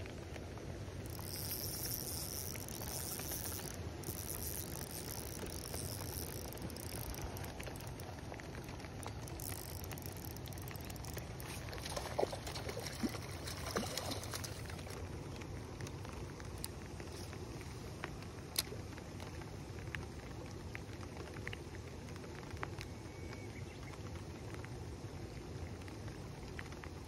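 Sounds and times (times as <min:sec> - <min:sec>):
rain pattering on pond: 0:00.0 - 0:27.0
fish splashing in water: 0:00.9 - 0:15.6.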